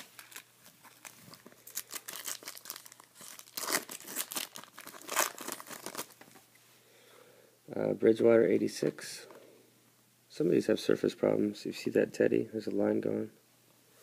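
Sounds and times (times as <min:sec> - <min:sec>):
foil pack crinkling: 0:00.0 - 0:06.2.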